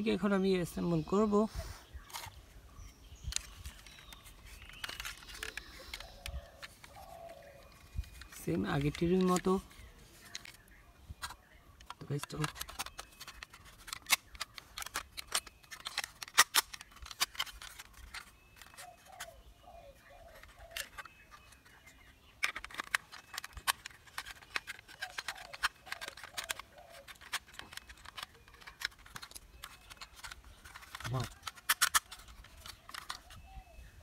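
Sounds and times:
plastic toy parts clicking: 3.3 - 19.3, 20.3 - 21.6, 22.4 - 33.4.

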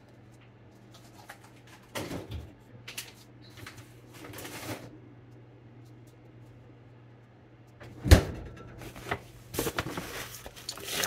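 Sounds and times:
faint low refrigerator hum: 0.0 - 11.0
packaging rustling: 9.5 - 11.0.

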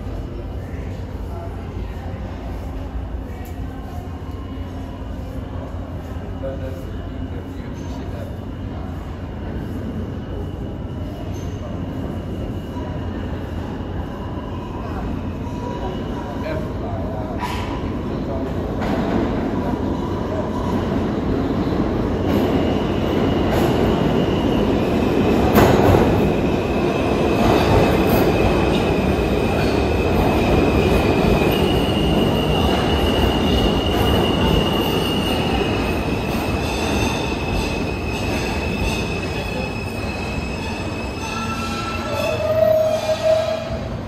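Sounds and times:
subway train wheels rumbling on rail: 0.0 - 44.0
high-pitched wheel squeal: 36.6 - 43.9.

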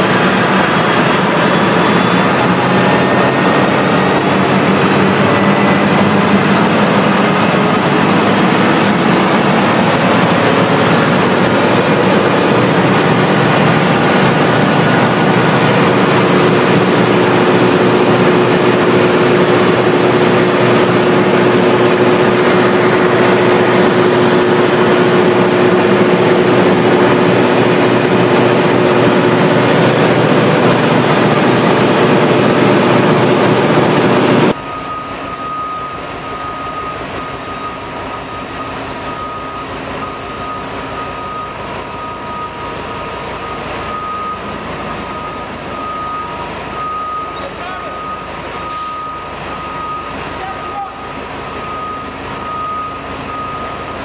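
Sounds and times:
low rumble in a hall: 0.0 - 54.0
truck engine running loudly: 0.0 - 54.0
high beeps: 1.3 - 16.5, 34.5 - 54.0.

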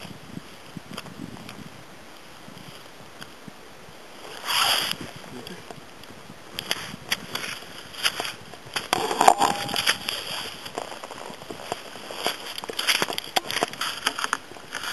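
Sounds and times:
skis scraping through crusty snow: 4.2 - 5.2, 6.6 - 9.2, 10.1 - 14.9
ski boots clicking in bindings: 6.6 - 14.9.

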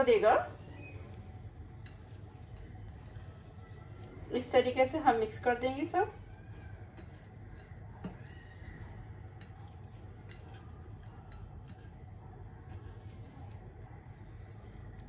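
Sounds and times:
onion slices rustling: 1.0 - 15.0.

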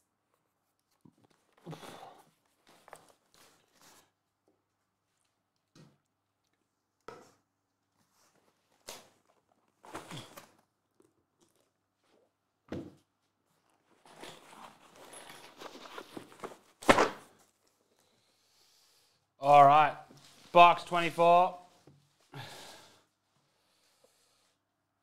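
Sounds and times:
box set down with a thunk: 16.0 - 17.4.

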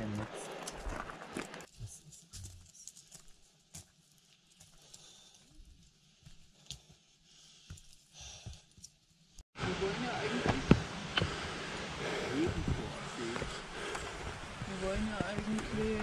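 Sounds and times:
footsteps on gravel: 0.4 - 1.7, 13.3 - 16.0.

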